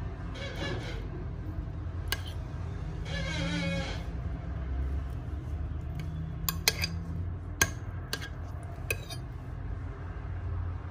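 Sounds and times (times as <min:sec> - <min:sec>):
metal spoon clinking against pan: 0:06.4 - 0:09.3.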